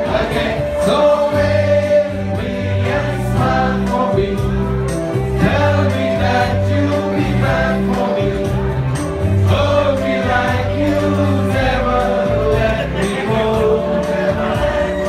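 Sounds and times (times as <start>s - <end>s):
group of voices singing: 0.0s - 15.0s
sustained bass notes: 0.0s - 15.0s.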